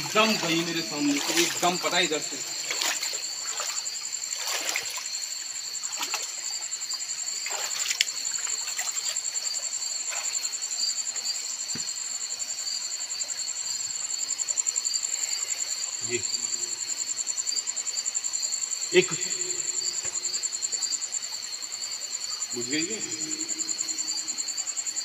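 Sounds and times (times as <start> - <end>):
footsteps splashing through water: 0.0 - 5.1, 5.9 - 6.4, 7.4 - 9.2
night insects chirring: 0.0 - 25.0.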